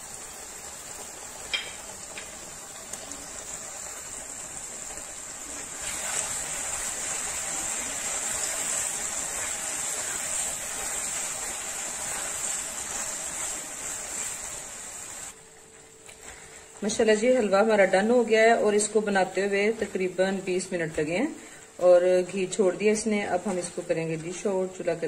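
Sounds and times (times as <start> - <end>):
food sizzling in a frying pan: 0.0 - 15.7.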